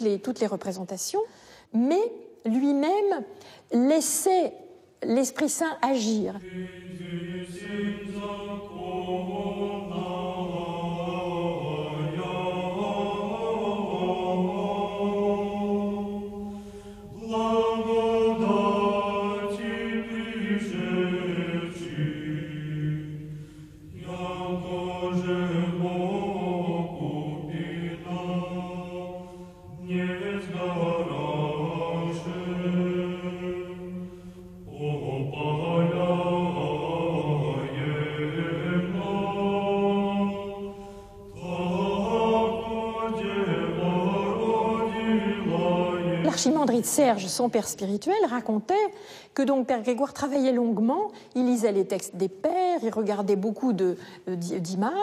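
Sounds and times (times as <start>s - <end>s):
choir chanting: 6.0s - 47.4s.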